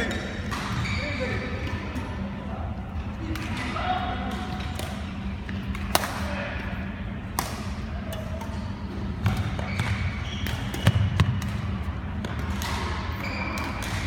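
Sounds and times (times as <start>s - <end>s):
rackets hitting shuttlecock: 3.3s - 6.6s, 7.3s - 14.0s.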